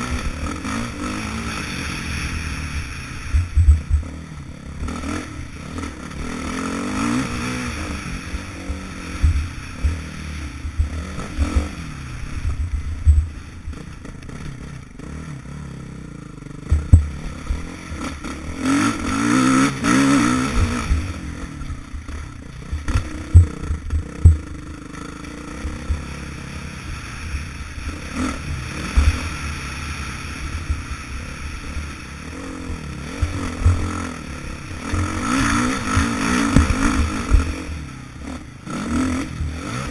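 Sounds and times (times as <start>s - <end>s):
dirt bike engine revving: 0.0s - 39.9s
sharp thumps: 16.6s - 17.6s, 22.8s - 24.6s.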